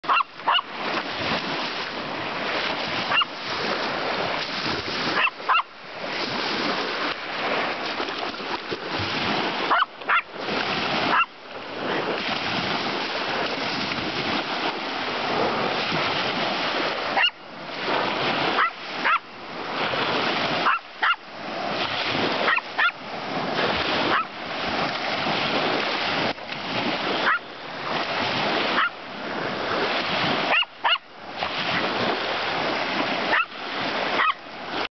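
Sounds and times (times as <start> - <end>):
dog barking: 0.0 - 0.7, 3.1 - 3.3, 5.2 - 5.7, 9.7 - 10.3, 11.1 - 11.3, 17.2 - 17.4, 18.6 - 19.3, 20.6 - 21.2, 22.4 - 23.0, 24.1 - 24.3, 27.2 - 27.4, 28.7 - 29.0, 30.5 - 31.1, 33.3 - 33.5, 34.2 - 34.4
waves lapping on beach: 0.0 - 34.9.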